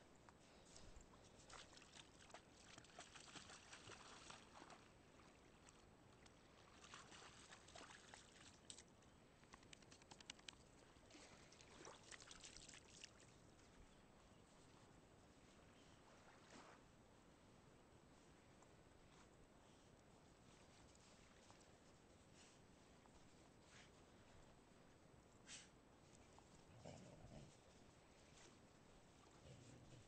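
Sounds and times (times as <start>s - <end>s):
dog splashing through shallow water: 1.4s - 4.9s, 6.6s - 8.9s, 11.2s - 13.4s.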